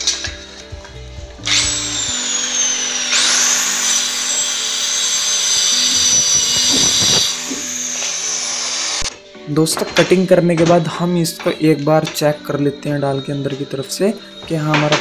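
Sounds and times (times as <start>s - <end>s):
circular saw cutting board: 1.4s - 9.2s.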